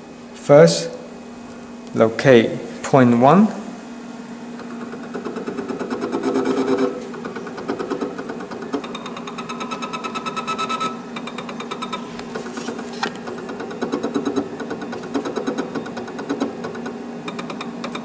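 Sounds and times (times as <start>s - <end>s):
stepper motors whirring: 4.6s - 18.0s.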